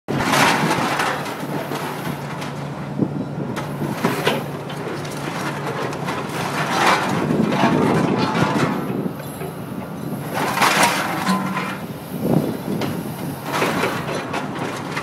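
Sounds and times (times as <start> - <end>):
excavator diesel engine running: 0.1 - 15.0
scrap metal rattling: 10.4 - 15.0
sharp metal clanks: 10.8 - 11.9.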